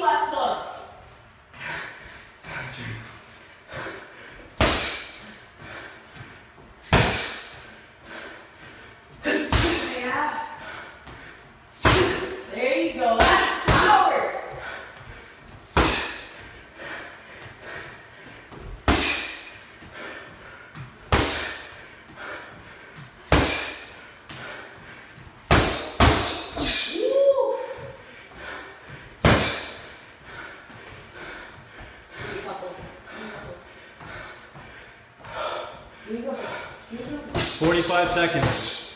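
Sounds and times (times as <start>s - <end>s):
boxing gloves punching mitts: 6.8s - 7.7s, 9.4s - 9.9s, 11.8s - 12.4s, 13.2s - 16.6s, 17.7s - 20.0s, 20.7s - 30.0s.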